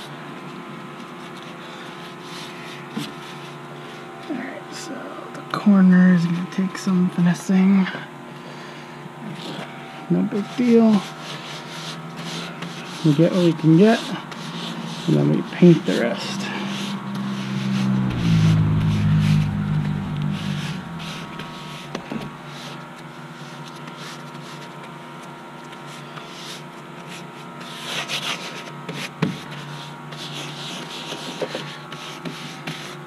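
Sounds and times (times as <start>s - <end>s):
paint rubbing on canvas: 10.4s - 18.0s
low motor hum: 14.9s - 22.7s.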